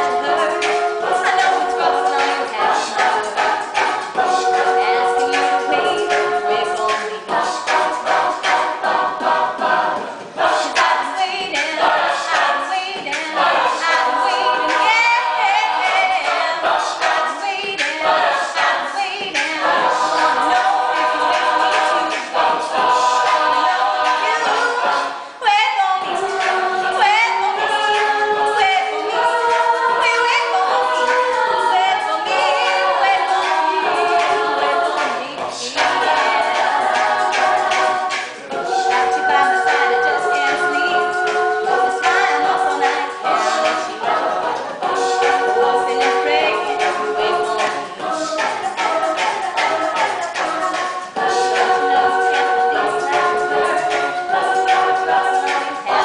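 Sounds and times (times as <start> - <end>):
a cappella group singing: 0.0 - 56.0.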